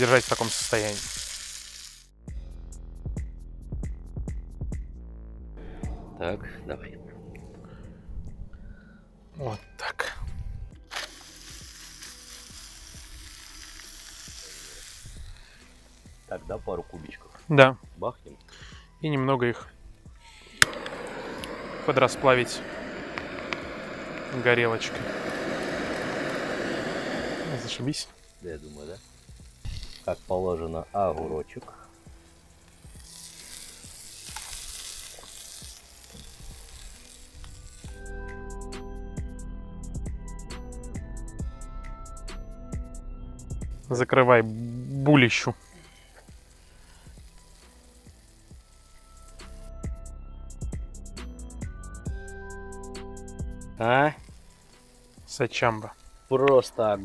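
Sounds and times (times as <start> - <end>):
burger patties sizzling in a pan: 0.0 - 2.2, 10.9 - 17.4, 20.3 - 39.1, 43.8 - 50.0, 52.1 - 57.0.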